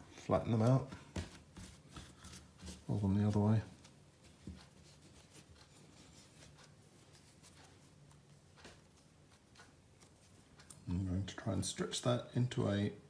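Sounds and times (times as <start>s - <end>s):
dough rubbing and tapping on counter: 0.3s - 10.4s.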